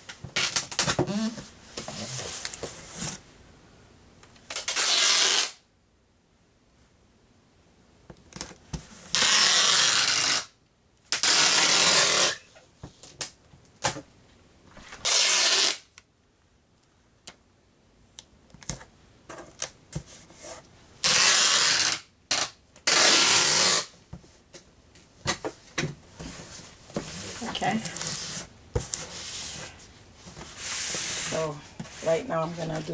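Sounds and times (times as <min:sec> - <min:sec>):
packing tape screeching off tape gun: 0:00.4 - 0:01.4, 0:04.5 - 0:05.6, 0:09.1 - 0:12.6, 0:15.0 - 0:15.9, 0:21.0 - 0:23.9.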